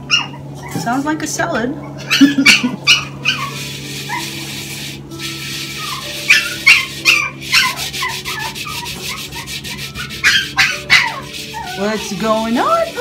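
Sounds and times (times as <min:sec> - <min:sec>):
dog whimpering: 0:00.0 - 0:01.0, 0:01.8 - 0:04.3, 0:05.7 - 0:13.0
dog yipping: 0:00.0 - 0:01.0, 0:01.8 - 0:04.5, 0:05.7 - 0:13.0
cloth scrubbing metal: 0:03.2 - 0:13.0.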